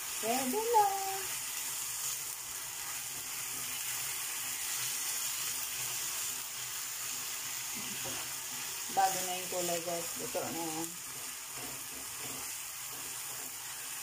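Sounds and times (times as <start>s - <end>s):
meat sizzling in a frying pan: 0.0s - 14.0s.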